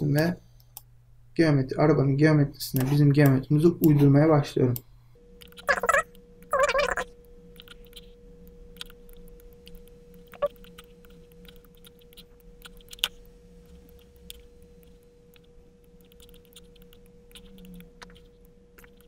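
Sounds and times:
faint electrical hum: 0.0 - 19.0
computer mouse clicks: 7.6 - 19.0.

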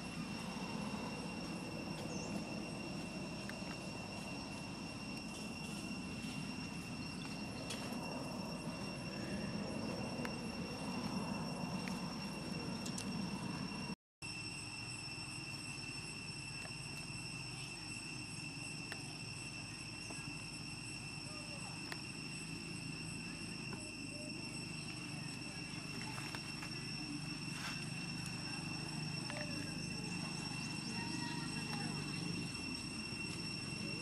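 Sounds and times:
high-pitched whine: 0.0 - 34.0.

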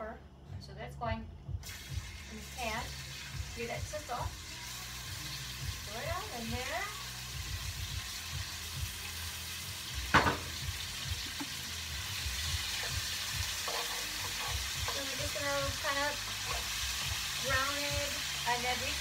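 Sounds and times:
beef sizzling in frying pan: 1.6 - 19.0
sharp knock: 10.1 - 10.6
utensil stirring: 12.3 - 18.4.

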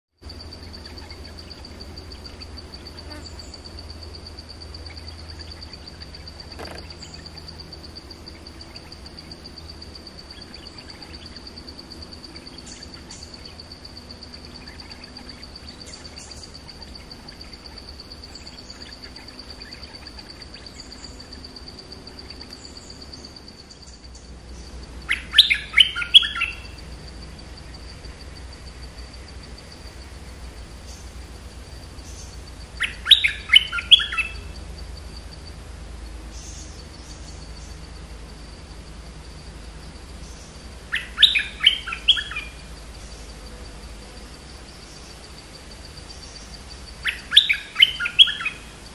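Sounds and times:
songbirds chirping: 0.2 - 48.9
close bird call notes: 25.0 - 26.9, 32.0 - 34.6, 40.3 - 43.3, 46.2 - 48.7.

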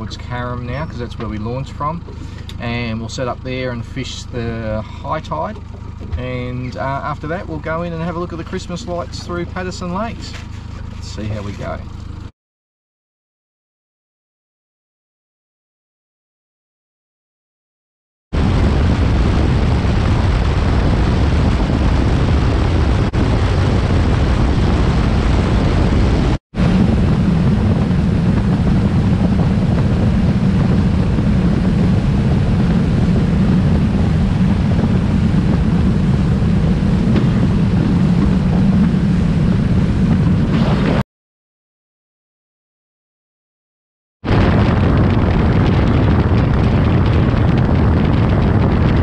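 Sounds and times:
outboard motor droning: 0.0 - 12.3, 26.1 - 41.0
wind on microphone: 18.4 - 41.0, 44.2 - 49.0
water rushing along hull: 26.6 - 41.0.

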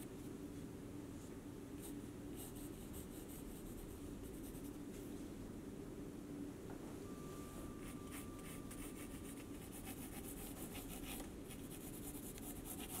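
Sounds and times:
pencil scratching on paper: 8.8 - 13.0.

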